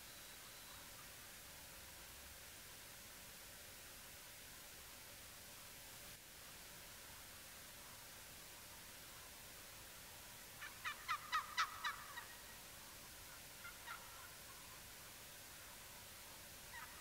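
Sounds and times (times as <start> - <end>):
turkey gobbling: 10.6 - 12.5, 13.3 - 14.8, 16.7 - 17.0.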